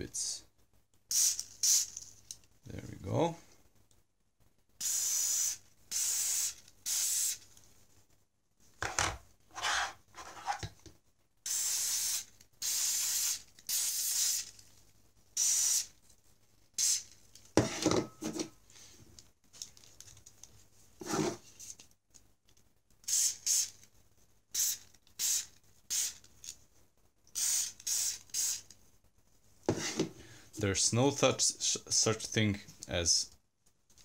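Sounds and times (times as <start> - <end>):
aerosol spray hissing: 4.8 - 7.4, 11.5 - 14.5, 15.4 - 15.9, 24.5 - 26.2, 27.3 - 28.7.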